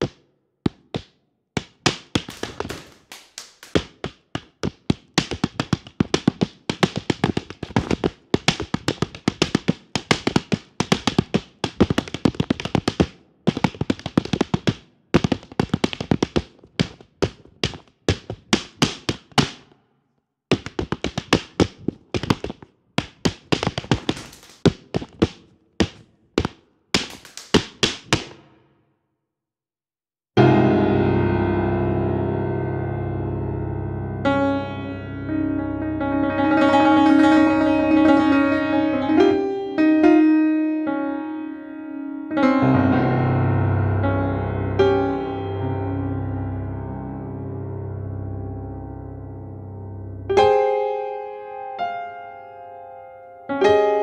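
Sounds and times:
flamenco shoes tapping on floor: 0.0 - 19.6, 20.5 - 28.6.

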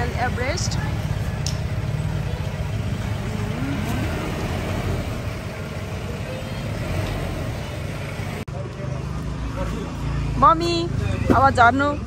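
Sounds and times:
street noise: 0.0 - 12.0
vehicle engine rumble: 0.0 - 12.0.

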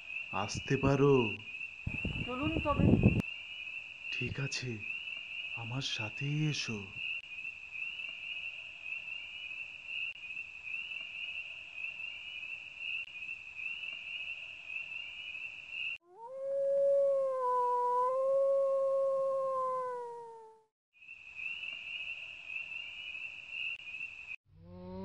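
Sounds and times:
night insects chirring: 0.0 - 20.1, 21.0 - 24.4
dog howling: 16.1 - 20.7.

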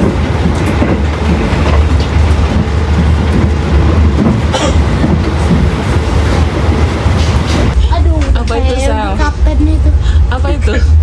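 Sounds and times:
train rumble inside carriage: 0.0 - 11.0
clicks of train wheels: 7.1 - 8.6.

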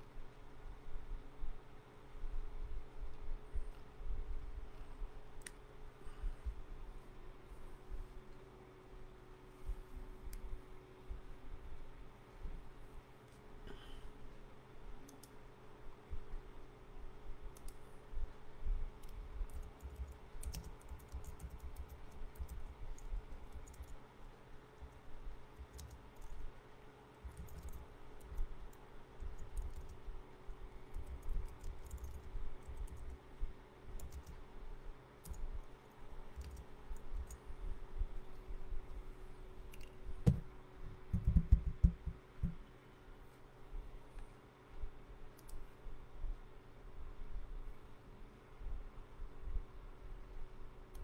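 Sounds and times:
faint steady hum: 0.0 - 51.0
typing on a computer keyboard: 19.0 - 24.0, 24.8 - 26.4, 27.2 - 30.1, 30.9 - 33.2, 33.9 - 34.4, 35.2 - 35.5, 36.3 - 37.4, 41.1 - 42.6.

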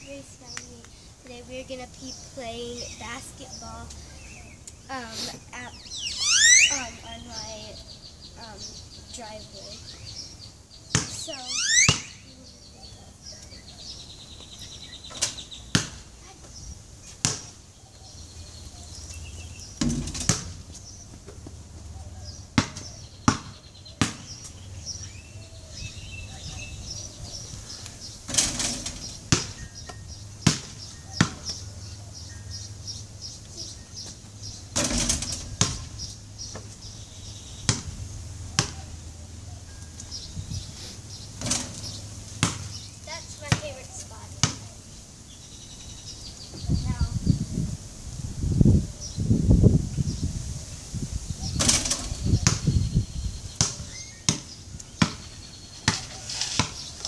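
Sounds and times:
ball hitting backboard and rim: 10.9 - 12.3, 15.1 - 16.0, 17.2 - 17.6, 19.8 - 20.8, 22.6 - 24.4, 28.3 - 29.6, 30.4 - 31.6, 34.8 - 36.0, 37.7 - 37.9, 38.6 - 38.8, 41.4 - 42.8, 44.4 - 44.7, 53.6 - 56.8
basketball bouncing on concrete: 10.9 - 12.3, 15.1 - 16.1, 17.2 - 17.6, 19.7 - 21.6, 22.6 - 24.6, 29.0 - 31.7, 34.8 - 36.7, 37.7 - 39.0, 41.4 - 42.8, 43.4 - 44.7, 51.7 - 52.8, 53.5 - 56.9.

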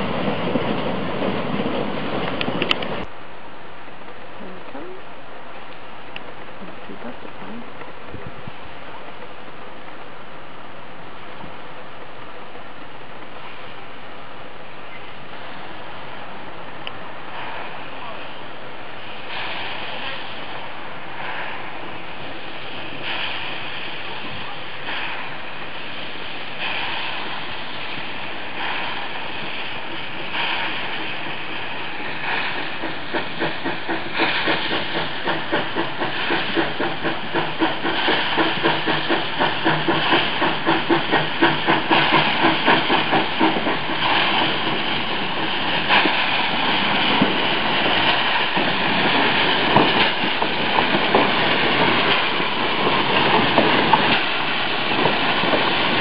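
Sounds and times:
steam locomotive chuffing: 17.2 - 56.0.

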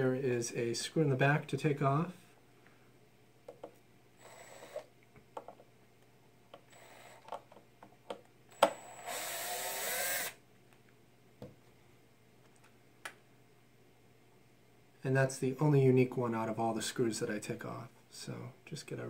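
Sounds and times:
cordless drill whirring: 4.2 - 4.9, 6.7 - 7.2, 8.5 - 10.4
drill bit clicking: 8.6 - 10.4.

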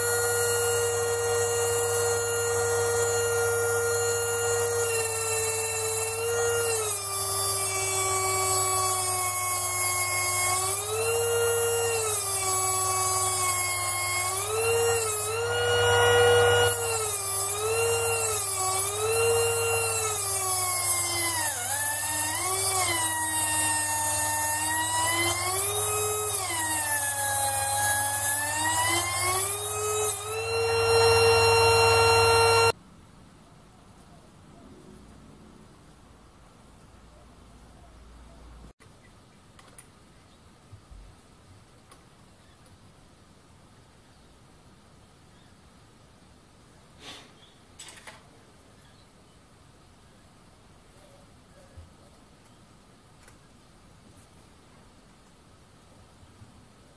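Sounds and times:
air die grinder whining: 0.0 - 32.8.

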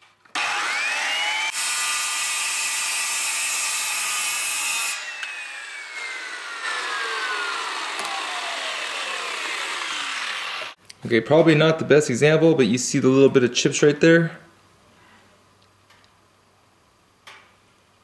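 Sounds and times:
saw motor whine spinning down: 0.3 - 2.4, 4.9 - 10.8
circular saw cutting panel: 0.3 - 10.8.

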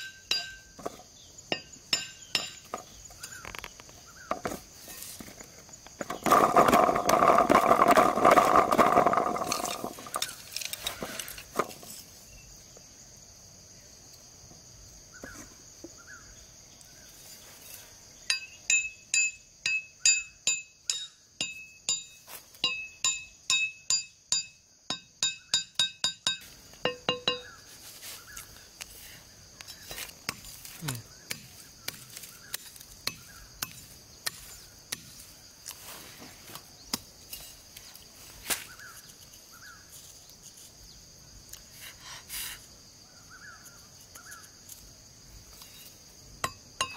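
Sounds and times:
high insect hum: 0.0 - 46.9
plastic bottle rustling and scraping: 3.6 - 12.0.

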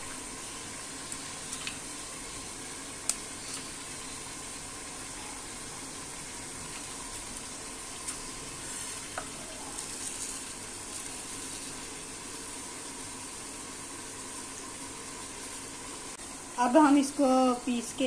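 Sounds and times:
steady background hiss: 0.0 - 18.0
seeds rattling: 9.7 - 11.9.

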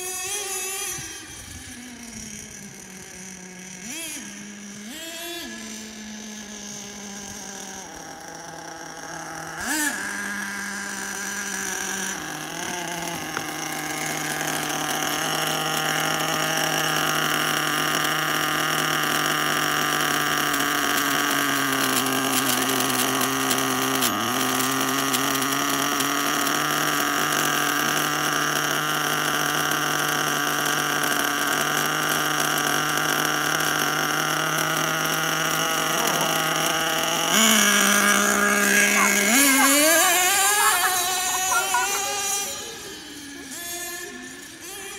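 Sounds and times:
small glow engine running: 0.0 - 44.9.

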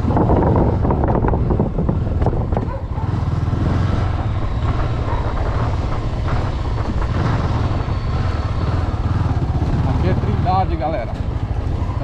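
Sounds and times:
motorcycle engine throb: 0.0 - 12.0
road noise: 0.0 - 12.0.

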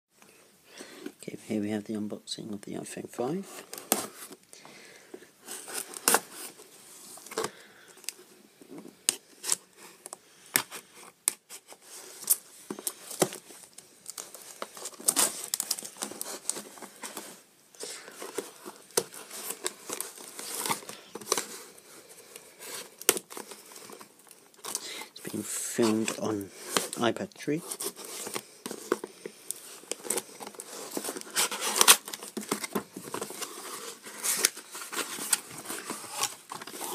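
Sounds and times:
cardboard box being torn open: 29.9 - 36.9.

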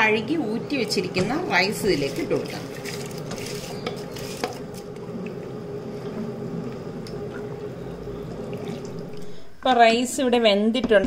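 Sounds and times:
water bubbling: 5.0 - 9.6.

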